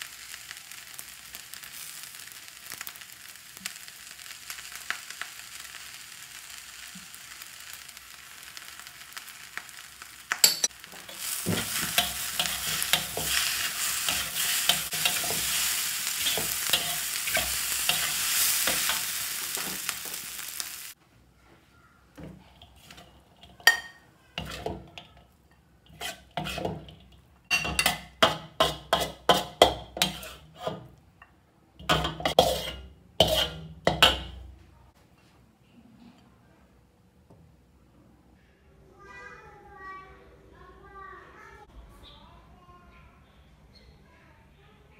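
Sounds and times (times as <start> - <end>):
rice sizzling in a wok: 0.0 - 21.0, 22.2 - 31.0, 31.8 - 34.5
metal spatula scraping a wok: 10.4 - 20.2, 22.2 - 31.0, 31.8 - 34.4.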